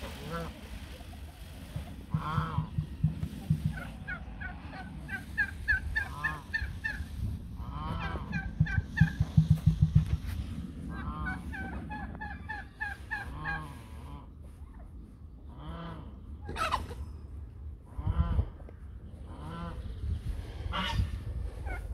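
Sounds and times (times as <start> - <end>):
fowl squawking: 0.0 - 2.9, 3.6 - 9.2, 10.9 - 14.8, 15.6 - 17.0, 20.7 - 21.9
fowl chirping: 0.1 - 9.2.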